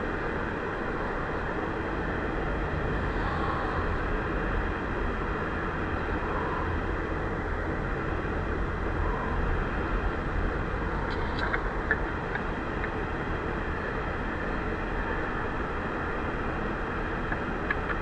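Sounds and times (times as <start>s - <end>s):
steady low background noise: 0.0s - 18.0s.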